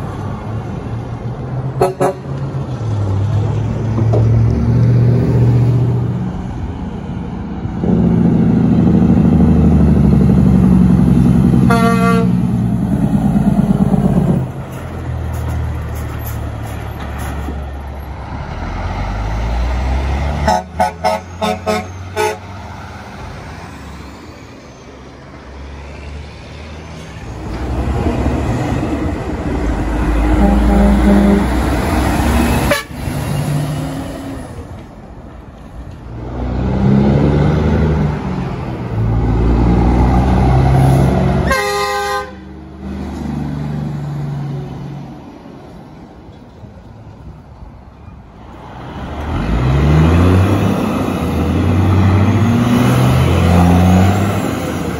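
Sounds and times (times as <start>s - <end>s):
heavy diesel truck engines: 0.0s - 54.9s
truck horn blasts: 1.8s - 2.3s, 11.6s - 12.5s, 20.4s - 22.5s, 30.2s - 31.7s, 32.5s - 33.1s, 41.4s - 42.6s
short horn toots: 11.7s - 12.4s, 30.3s - 31.5s.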